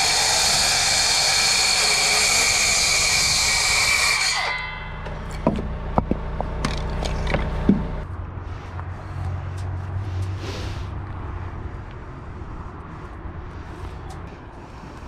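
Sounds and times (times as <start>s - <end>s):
lift engine running: 1.8s - 8.1s
sharp knocks and clicks: 5.0s - 7.9s.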